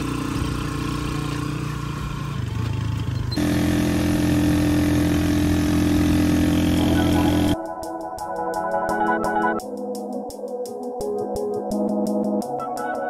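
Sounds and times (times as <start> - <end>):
vehicle engine running: 0.0 - 7.6.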